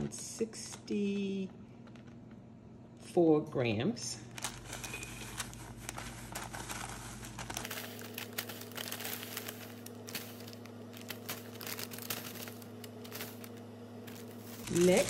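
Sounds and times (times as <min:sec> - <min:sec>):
baking paper crinkling: 0:04.2 - 0:15.0
low hum: 0:04.2 - 0:15.0.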